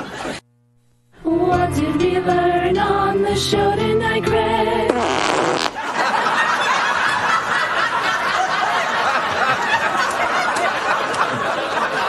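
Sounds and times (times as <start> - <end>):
audience laughing: 0.0 - 0.4, 5.7 - 12.0.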